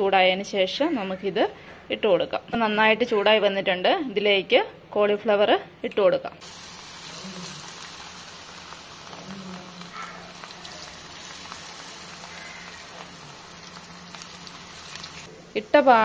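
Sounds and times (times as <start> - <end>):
food deep-frying in hot oil: 6.4 - 16.0.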